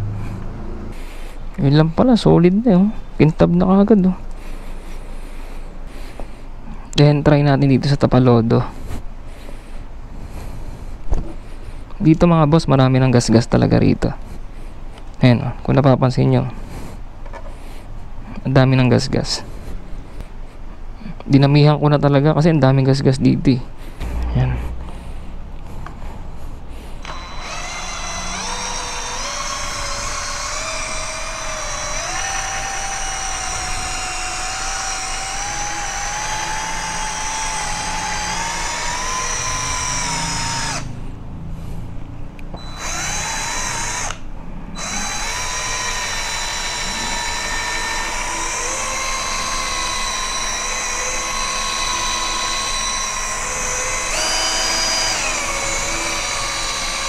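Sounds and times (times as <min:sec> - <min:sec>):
cordless drill motor whine: 0:24.0 - 0:25.0, 0:27.0 - 0:41.0, 0:42.5 - 0:57.0.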